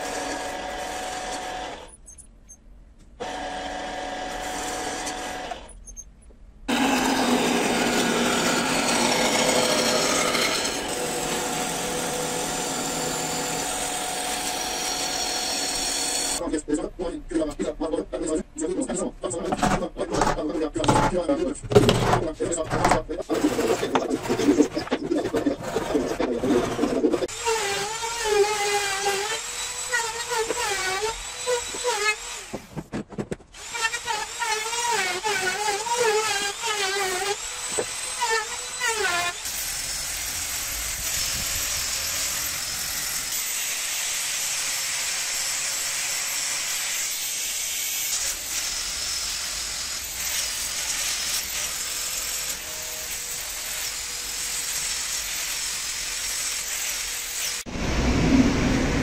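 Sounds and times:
router cutting wood: 0:03.2 - 0:05.7, 0:06.7 - 0:16.4, 0:20.2 - 0:32.7, 0:33.6 - 0:57.7
hand saw rasping through wood: 0:06.7 - 0:16.4, 0:21.8 - 0:32.6.

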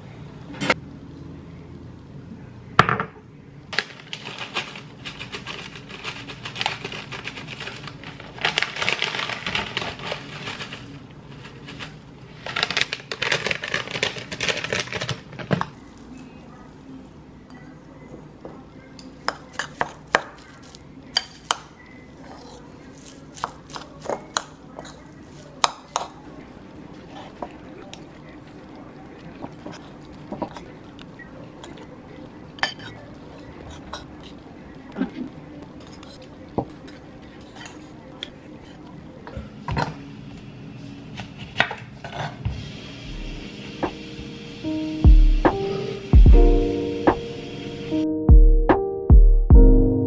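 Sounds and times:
dried seaweed crinkling: 0:03.7 - 0:16.4.

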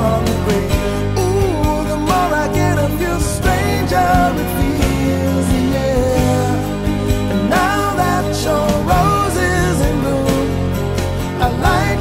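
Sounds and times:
song with singing voice: 0:00.0 - 0:12.0.

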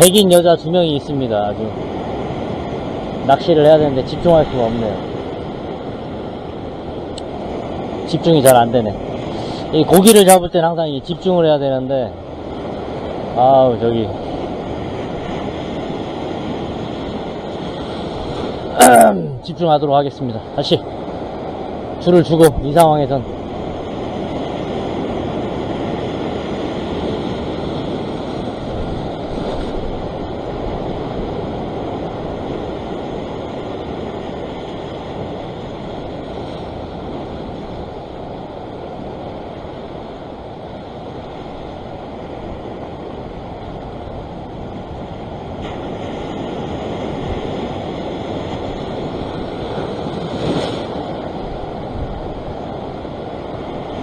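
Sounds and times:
ocean surf on rocks: 0:00.0 - 0:54.0
wind on microphone: 0:20.9 - 0:54.0.

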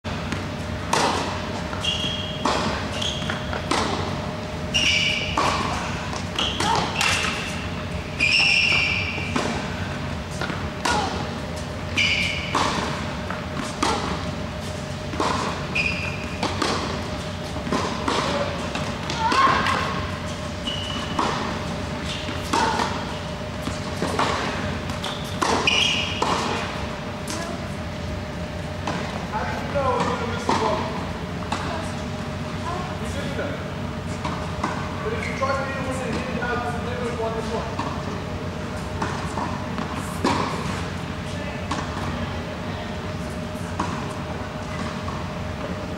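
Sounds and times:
shoes squeaking on court: 0:00.1 - 0:42.2
ball bouncing on hard court: 0:00.2 - 0:04.2, 0:15.0 - 0:27.5
tennis balls struck with racket: 0:00.2 - 0:27.6, 0:38.8 - 0:40.9.

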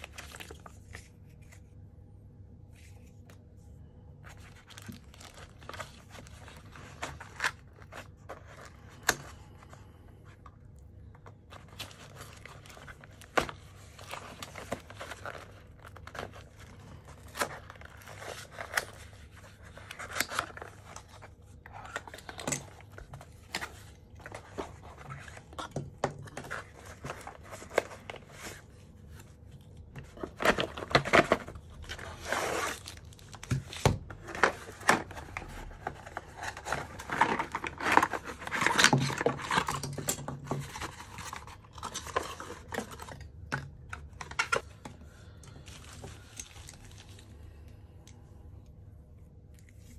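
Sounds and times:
plastic wrapping crinkling: 0:04.2 - 0:10.0, 0:29.8 - 0:43.2.

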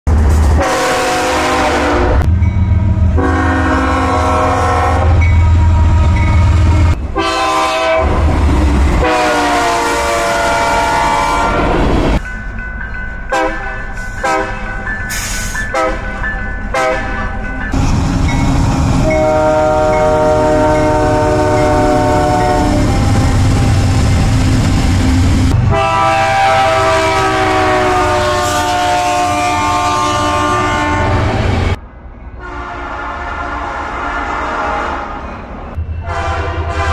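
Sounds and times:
rumble of passing train: 0:00.1 - 0:36.9
locomotive air horns: 0:00.6 - 0:02.3, 0:03.2 - 0:08.4, 0:09.0 - 0:11.9, 0:13.3 - 0:17.3, 0:19.0 - 0:24.1, 0:25.7 - 0:31.7, 0:32.4 - 0:35.2, 0:36.0 - 0:36.9.

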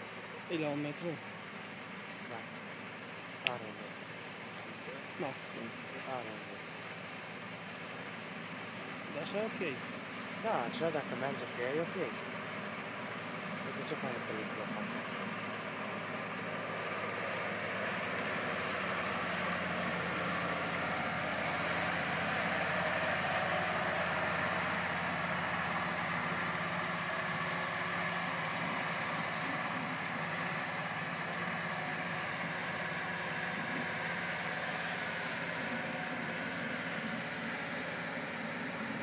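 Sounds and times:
crop sprayer engine running: 0:00.0 - 0:39.0.

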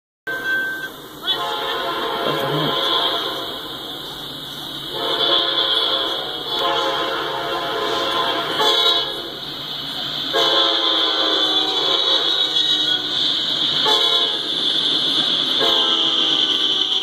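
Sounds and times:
crossing signal bell ringing: 0:00.3 - 0:01.1
locomotive air horn blasts: 0:00.3 - 0:03.9, 0:04.9 - 0:09.4, 0:10.3 - 0:13.1, 0:13.8 - 0:14.6, 0:15.6 - 0:17.0.

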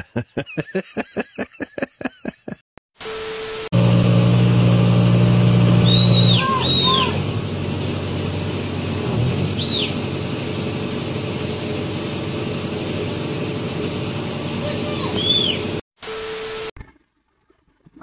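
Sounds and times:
diesel engine running: 0:03.8 - 0:15.8.

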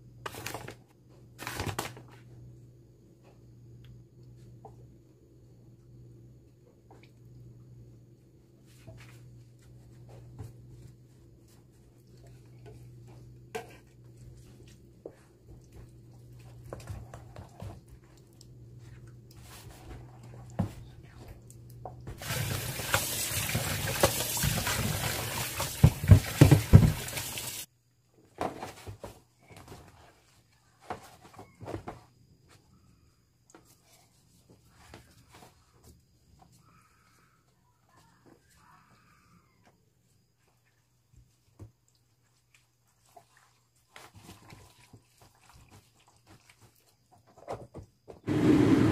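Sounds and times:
tap water running: 0:22.1 - 0:27.7.

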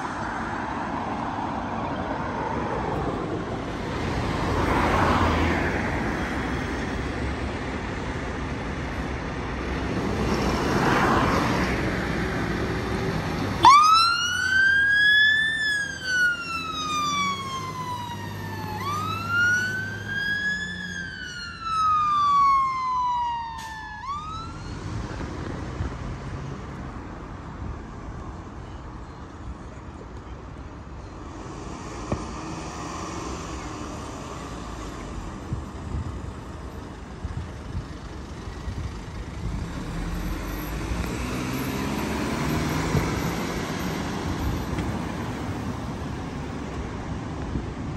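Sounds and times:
vehicles passing: 0:00.0 - 0:47.9
fire engine siren wailing: 0:13.6 - 0:25.0.

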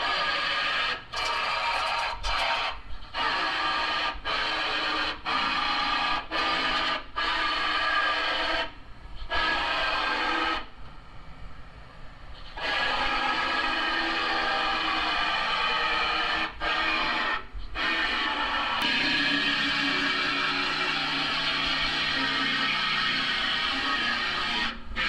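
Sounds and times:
power grinder on sheet metal: 0:09.3 - 0:10.7, 0:12.6 - 0:24.8.

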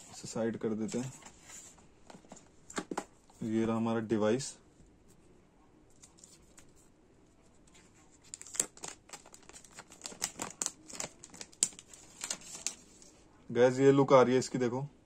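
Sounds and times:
plastic film crinkling: 0:08.2 - 0:13.2.

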